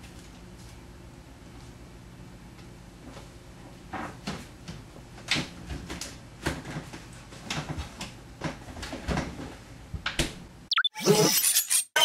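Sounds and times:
knocks and rattles in a fridge: 3.8 - 10.5.

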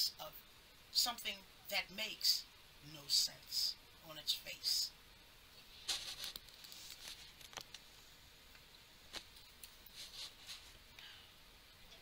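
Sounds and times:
faint rustling: 9.1 - 10.9.

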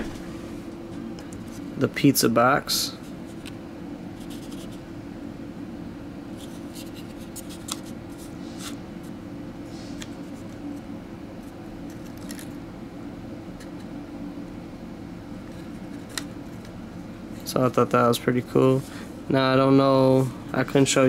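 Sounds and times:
steady low hum: 0.0 - 21.0
card clicking and rustling: 6.5 - 8.0, 11.8 - 12.6.

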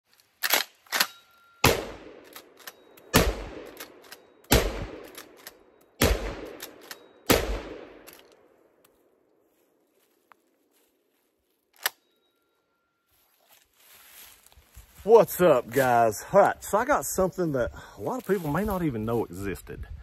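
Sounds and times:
shotgun blasts with echo: 1.6 - 2.2, 3.1 - 5.2, 6.0 - 6.7, 7.3 - 8.1.

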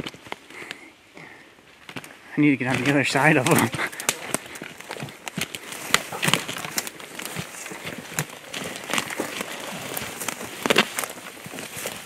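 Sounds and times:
twigs snapping: 0.0 - 12.0
footsteps through dry leaves: 2.6 - 12.0.

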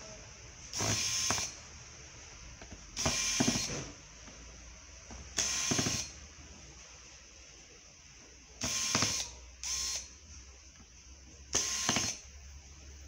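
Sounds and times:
electric screwdriver whining: 0.8 - 1.6, 3.0 - 3.8, 5.4 - 6.1, 8.6 - 10.0, 11.6 - 12.2.

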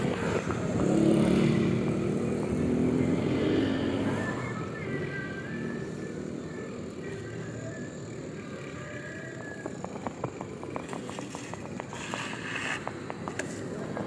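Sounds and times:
bicycle tyre and wind noise: 9.7 - 14.0.

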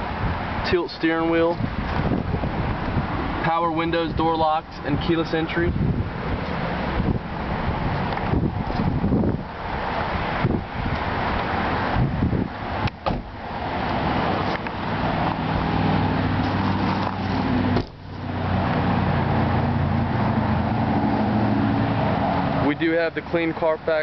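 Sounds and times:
wind noise on microphone: 0.0 - 22.6
car door shutting: 12.8 - 13.4, 16.4 - 18.1.

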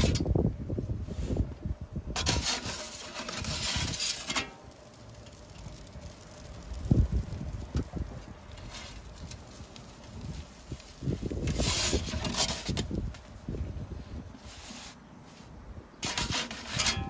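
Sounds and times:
metal peel scraping pizza stone: 2.1 - 7.4, 8.0 - 13.0, 16.0 - 17.0.

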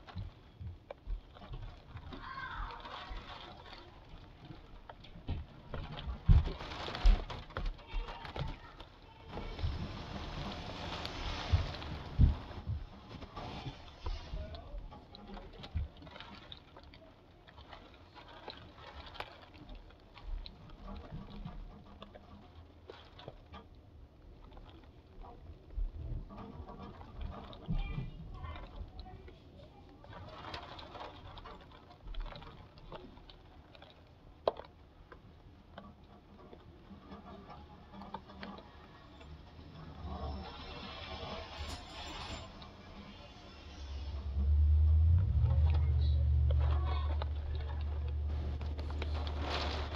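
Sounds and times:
light rain drops tapping: 0.0 - 41.2, 44.1 - 49.9
low bumps: 43.7 - 49.9
raindrops ticking: 44.2 - 49.9.

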